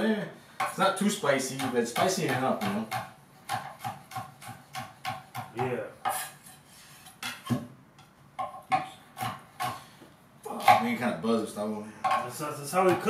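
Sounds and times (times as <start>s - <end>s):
knife chopping on wooden board: 1.6s - 6.2s, 8.4s - 9.9s.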